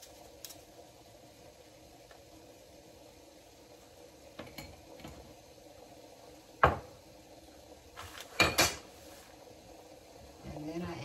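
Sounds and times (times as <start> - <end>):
utensils clinking on countertop: 8.3 - 8.9.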